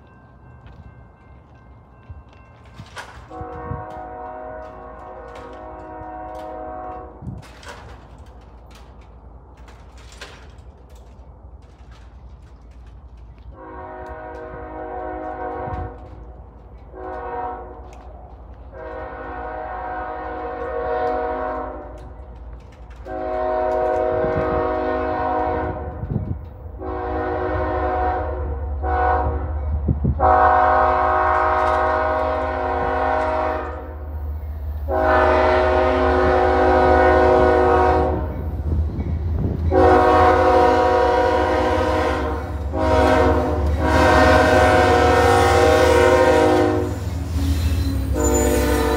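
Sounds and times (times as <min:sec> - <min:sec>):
locomotive engine rumble: 0:00.0 - 0:48.9
locomotive air horn blasts: 0:03.3 - 0:07.4, 0:13.5 - 0:16.1, 0:16.9 - 0:18.0, 0:18.7 - 0:22.0, 0:23.0 - 0:26.2, 0:26.8 - 0:29.5, 0:30.2 - 0:34.0, 0:34.9 - 0:38.4, 0:39.7 - 0:48.9.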